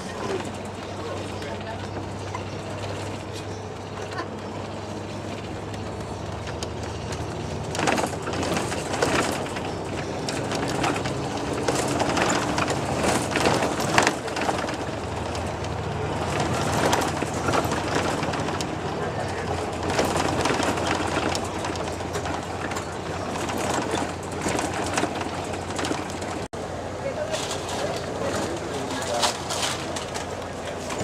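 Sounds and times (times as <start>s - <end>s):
vehicle engine drone: 0.0s - 31.0s
knocks and rattles: 5.1s - 26.5s.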